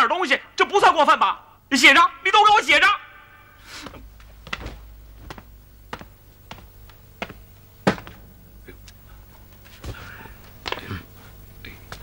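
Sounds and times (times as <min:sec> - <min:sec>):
footsteps on hard floor: 0:03.8 - 0:08.2.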